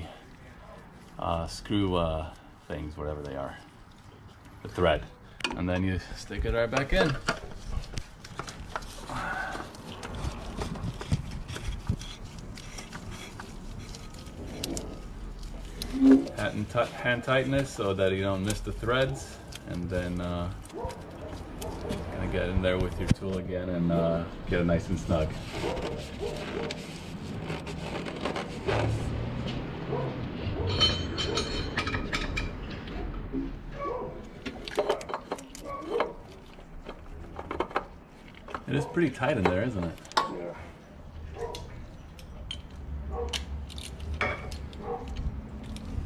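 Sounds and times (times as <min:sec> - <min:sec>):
rasping scrape: 0:07.0 - 0:17.8, 0:25.1 - 0:29.4.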